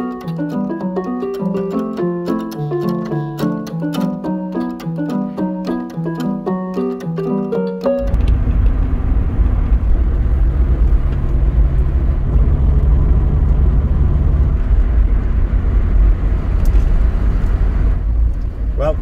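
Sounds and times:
road rumble: 8.0 - 19.0.

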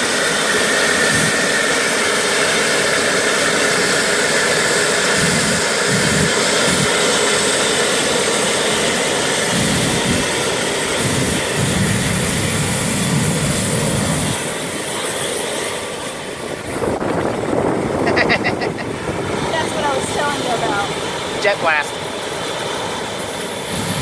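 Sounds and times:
jet engines running: 0.0 - 24.0
jet blast buffeting microphone: 8.8 - 14.7, 16.4 - 22.0, 23.6 - 24.0.

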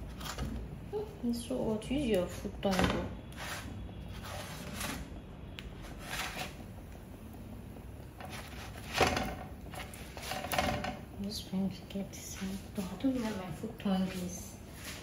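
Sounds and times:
bread scraping on frying pan: 2.2 - 5.1, 5.8 - 6.7, 8.2 - 11.1.

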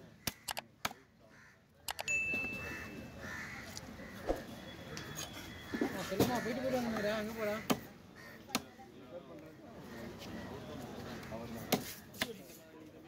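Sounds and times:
crows cawing: 0.2 - 1.7, 2.6 - 4.5, 5.6 - 8.6.

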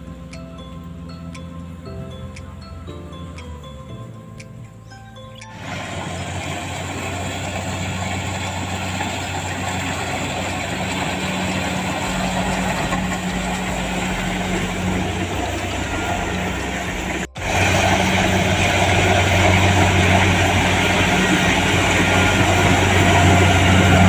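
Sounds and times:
combine harvester engine hum: 0.0 - 24.0
mechanical din of threshing: 5.6 - 24.0.

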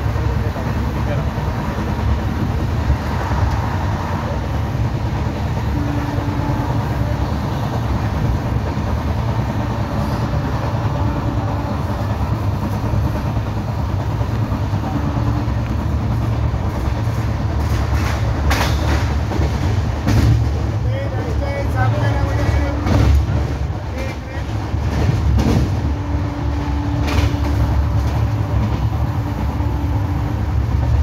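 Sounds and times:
train wheels rumbling on rail: 0.0 - 31.0.

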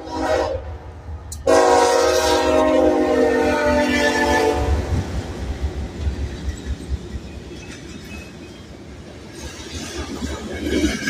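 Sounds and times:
train wheels clattering on rails: 4.9 - 11.0.

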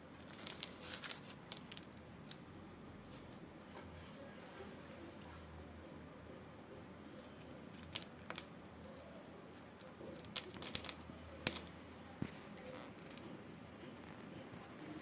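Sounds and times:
clay shards clinking on stone: 0.2 - 2.4, 7.2 - 9.1, 9.8 - 11.7.

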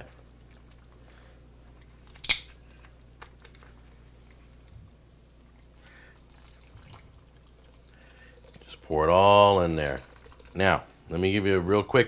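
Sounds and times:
stock pouring into a pot: 5.8 - 10.8.

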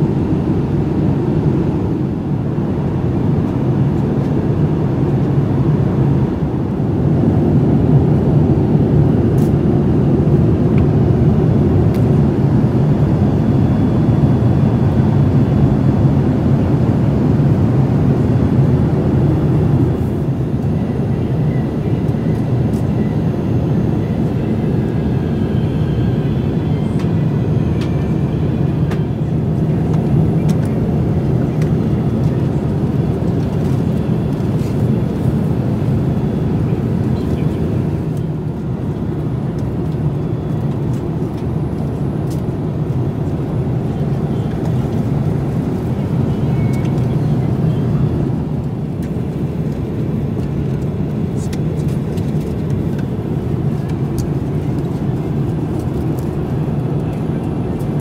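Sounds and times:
airliner cabin roar: 0.0 - 58.0.

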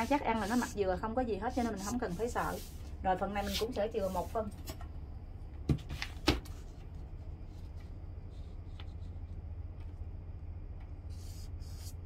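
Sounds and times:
marker pen on paper: 0.0 - 4.4, 11.0 - 12.0
steady low hum: 0.0 - 12.0.

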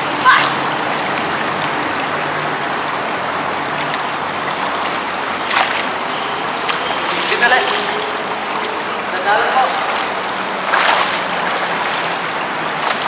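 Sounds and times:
river water running: 0.0 - 13.0
net splashing in water: 9.8 - 12.2.

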